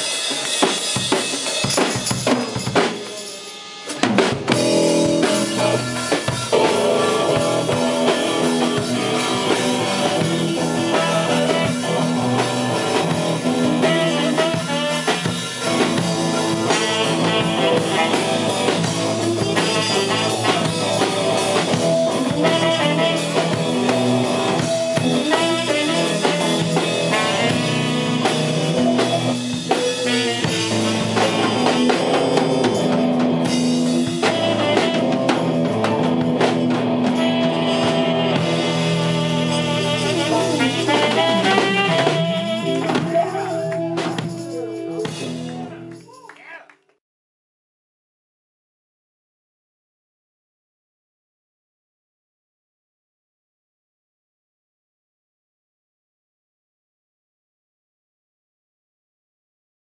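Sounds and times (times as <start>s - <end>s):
bass guitar: 0.0s - 46.2s
electric guitars: 0.0s - 46.2s
drum kit keeping the beat: 0.0s - 46.3s
trumpet: 3.5s - 46.0s
saxophone: 4.5s - 46.0s.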